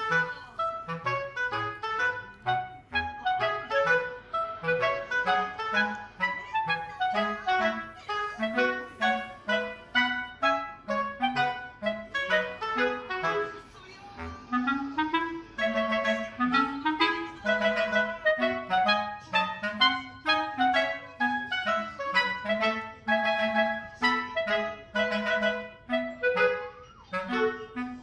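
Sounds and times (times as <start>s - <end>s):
bouncy clarinet tune: 0.0s - 28.0s.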